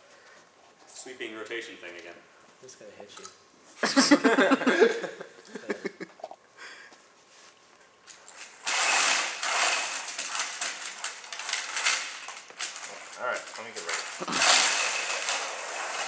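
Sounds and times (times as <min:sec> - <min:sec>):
robot drive motors whirring: 0:08.6 - 0:10.6.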